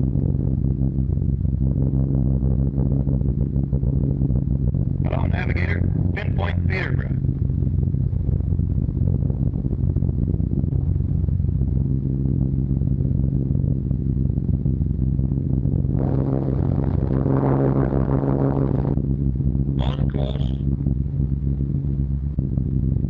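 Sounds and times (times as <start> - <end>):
aircraft engines droning: 0.0 - 23.0.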